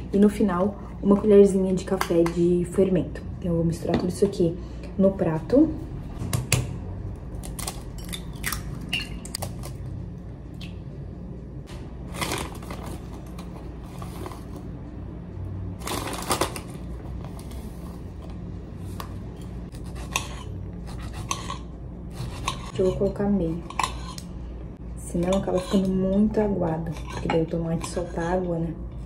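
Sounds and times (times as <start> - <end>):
low steady hum: 0.0 - 29.0
plastic bag crinkling: 12.1 - 14.5.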